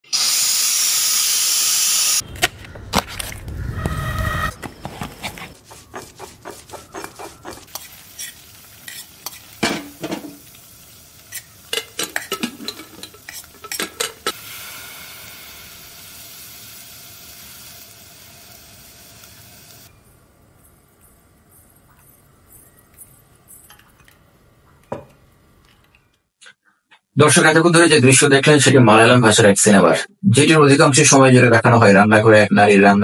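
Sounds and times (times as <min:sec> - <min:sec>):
utensils clinking and scraping bowls: 0:04.8 - 0:10.5, 0:11.2 - 0:14.4
food sizzling in a pan: 0:06.2 - 0:20.0.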